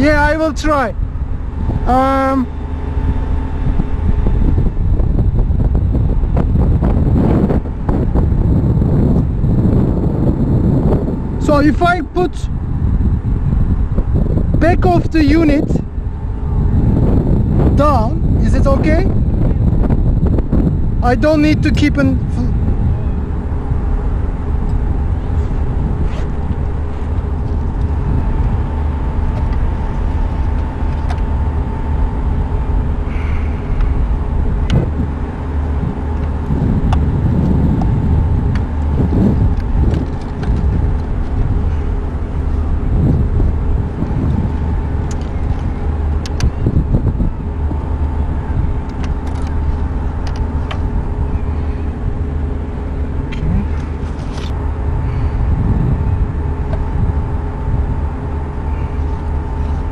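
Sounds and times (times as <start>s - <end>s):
machinery hum: 0.0s - 59.9s
steady low rumble: 0.0s - 59.9s.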